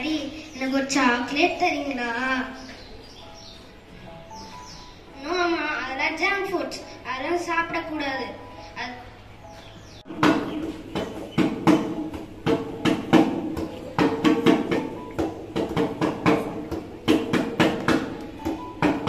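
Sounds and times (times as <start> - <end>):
steady percussion beat: 10.0 - 19.0.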